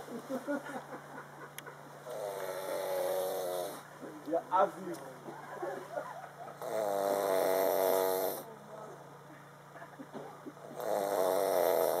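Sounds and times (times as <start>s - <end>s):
person snoring: 2.1s - 3.8s, 6.6s - 8.5s, 10.7s - 12.0s.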